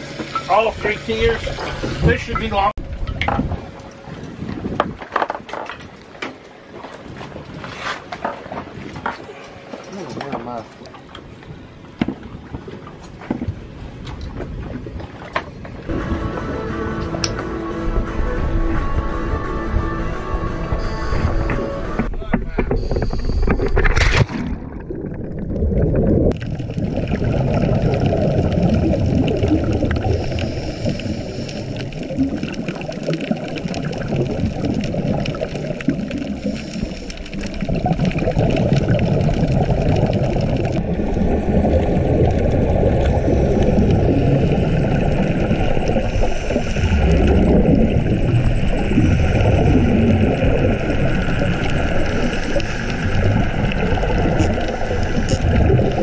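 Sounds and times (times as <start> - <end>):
water rushing: 0.0 - 4.2, 23.8 - 56.0
regulator bubbles underwater: 22.4 - 56.0.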